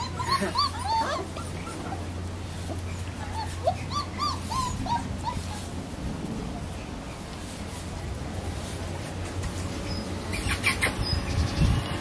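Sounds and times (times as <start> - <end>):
puppies whimpering and yipping: 0.0 - 6.1, 9.3 - 12.0.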